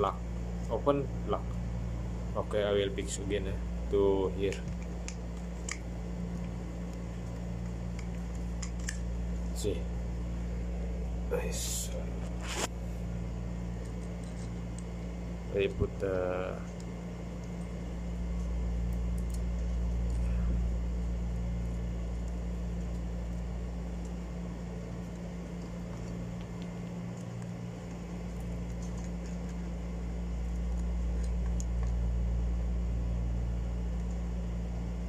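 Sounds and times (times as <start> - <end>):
low mechanical hum: 0.0 - 35.0.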